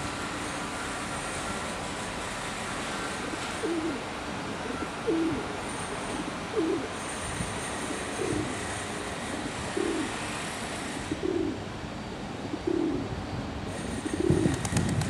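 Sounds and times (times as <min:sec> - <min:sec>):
steady hiss: 0:00.0 - 0:15.0
pigeon cooing: 0:03.2 - 0:06.9, 0:07.8 - 0:08.7, 0:09.4 - 0:10.1, 0:11.1 - 0:11.6, 0:12.5 - 0:13.1, 0:13.9 - 0:14.8.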